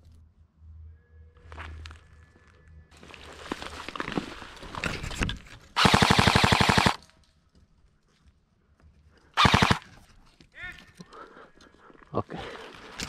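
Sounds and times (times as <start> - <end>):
airsoft rifle firing bursts: 5.8 - 7.0, 9.4 - 9.9.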